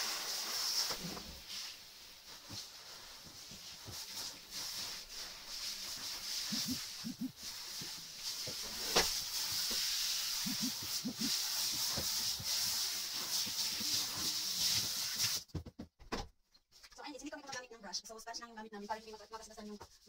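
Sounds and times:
shower head spraying water: 0.0 - 15.4.

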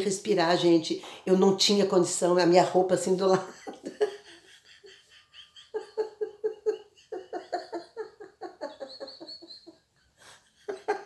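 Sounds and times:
woman laughing hard: 3.4 - 11.0.

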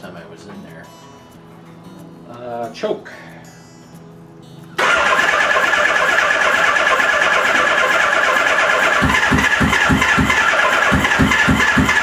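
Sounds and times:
electric starter whine: 4.8 - 12.0
engine compression pulsing: 4.8 - 12.0.

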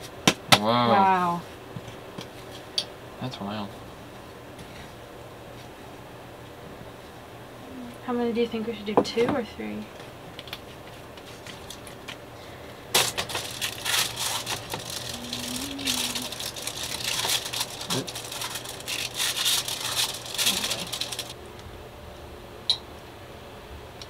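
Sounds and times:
aluminium foil crinkling: 10.4 - 12.2, 12.9 - 21.4
low hum: 12.4 - 24.0.

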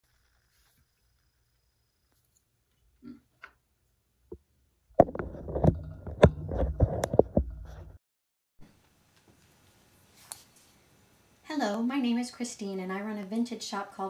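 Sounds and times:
rubbing and rumbling: 5.0 - 8.0.

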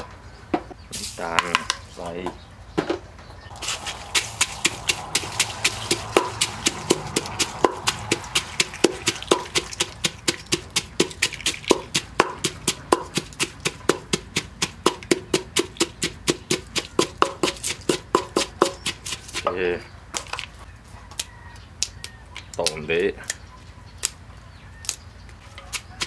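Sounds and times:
pestle pounding in mortar: 3.6 - 19.6.

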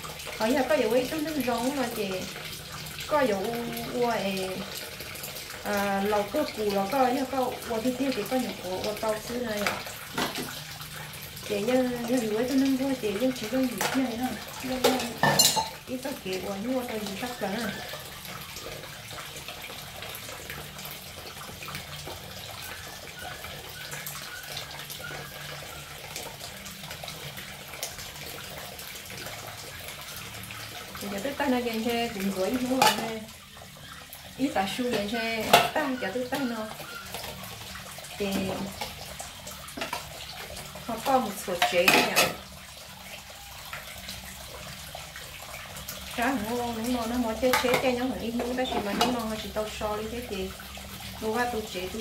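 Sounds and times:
tap running onto dishes: 0.0 - 16.1, 16.8 - 44.2, 44.9 - 49.5
crockery clinking: 14.8 - 15.8.

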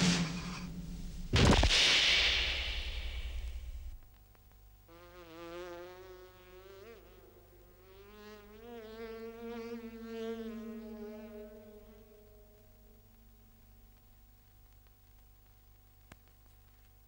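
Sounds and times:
fly buzzing: 4.9 - 13.6.

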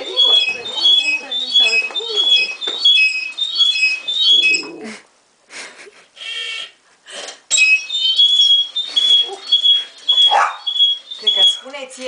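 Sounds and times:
exercise bike squeaking: 0.0 - 4.8, 7.5 - 12.0.

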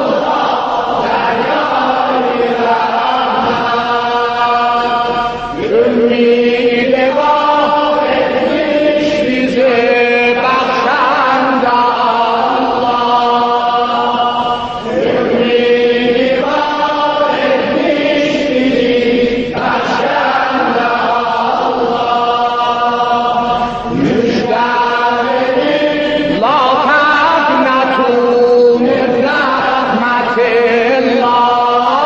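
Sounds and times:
man chanting in long held notes: 21.6 - 32.0.

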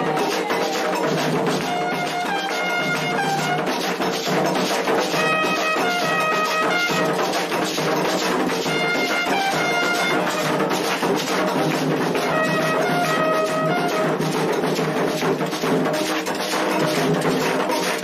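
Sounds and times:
drums beating: 0.0 - 18.0
bugle melody: 1.6 - 3.7, 5.2 - 7.3, 8.7 - 10.9, 12.2 - 14.3.

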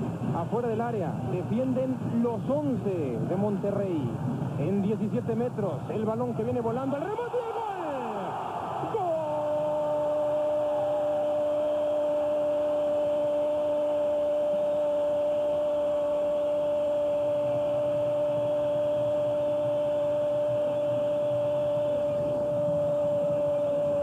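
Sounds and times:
crowd noise: 0.0 - 24.0.

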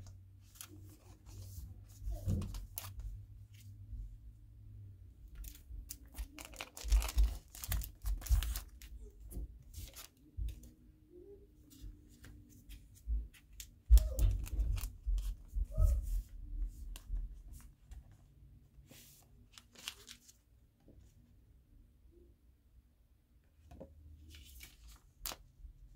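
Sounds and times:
paper wrapper tearing and crinkling: 5.4 - 8.8, 19.6 - 20.3.

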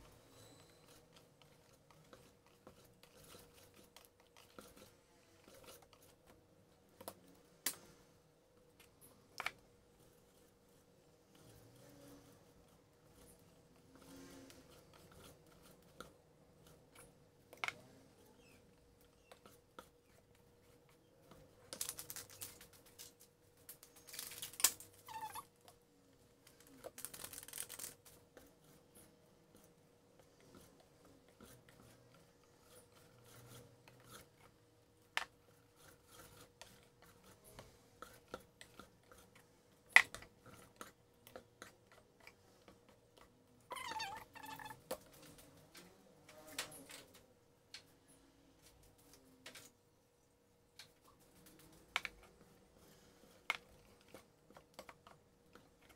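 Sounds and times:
plastic sachet crinkling: 21.7 - 25.2, 26.6 - 28.0.

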